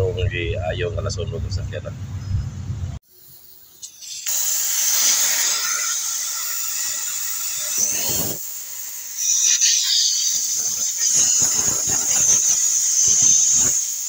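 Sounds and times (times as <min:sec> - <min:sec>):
loud steady hiss: 0:03.0 - 0:14.0.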